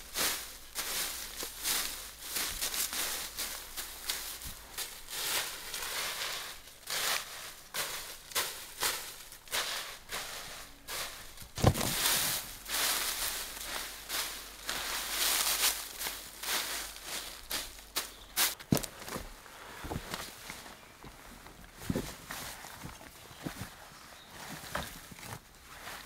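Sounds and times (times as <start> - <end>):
dry leaves rustling as raked: 0.0 - 18.6.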